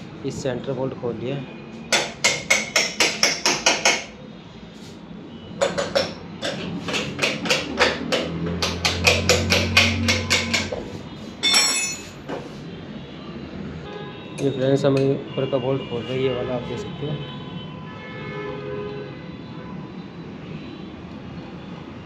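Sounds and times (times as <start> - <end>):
hammer striking metal: 1.9 - 4.2, 5.6 - 10.8, 11.4 - 12.4.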